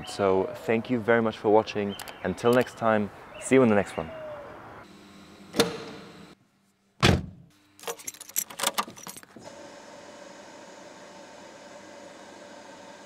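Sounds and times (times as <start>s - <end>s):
car door shutting thump: 7.0s - 7.4s
keys jangling: 7.8s - 9.3s.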